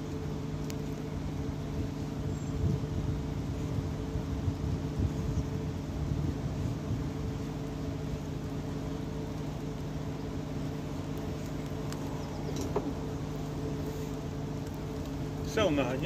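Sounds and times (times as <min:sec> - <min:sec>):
low mechanical hum: 0:00.0 - 0:16.0
faint clicks: 0:11.1 - 0:12.8.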